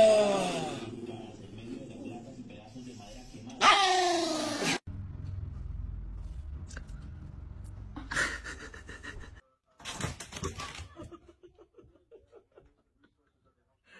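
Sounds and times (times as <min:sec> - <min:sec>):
low steady rumble: 0:04.9 - 0:08.7.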